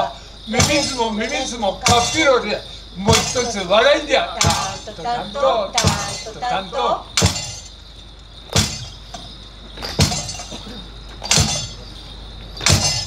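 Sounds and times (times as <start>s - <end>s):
people singing: 0.0s - 7.4s
drum thud with metallic clash: 0.6s - 1.2s, 1.8s - 2.5s, 3.1s - 3.7s, 4.4s - 4.9s, 5.8s - 6.3s, 7.2s - 7.8s, 8.5s - 11.9s, 12.6s - 13.0s.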